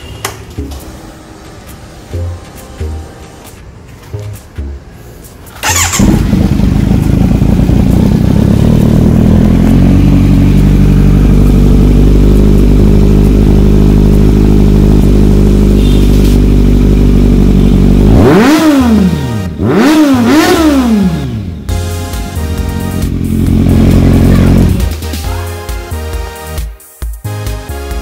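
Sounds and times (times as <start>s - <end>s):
motorcycle engine idling and revving: 5.3s - 25.0s.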